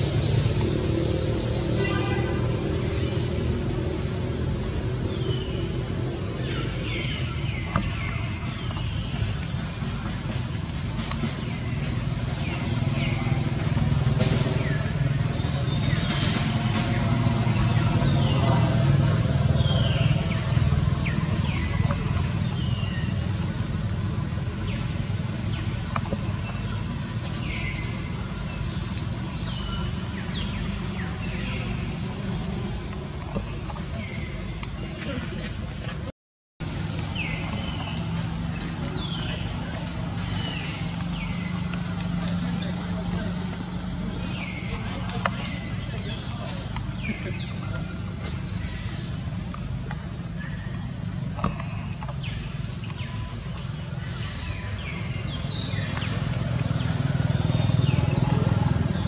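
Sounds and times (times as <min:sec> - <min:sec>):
low rumble: 0:00.0 - 0:34.8.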